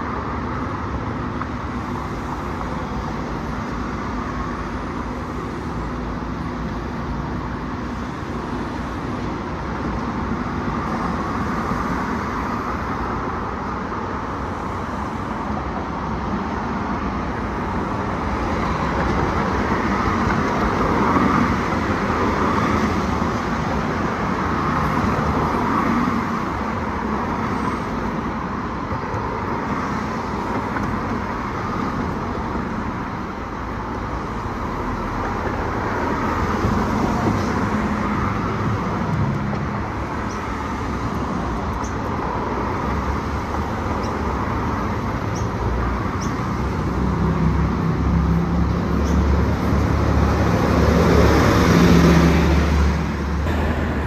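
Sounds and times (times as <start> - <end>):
road traffic passing: 0.0 - 54.0.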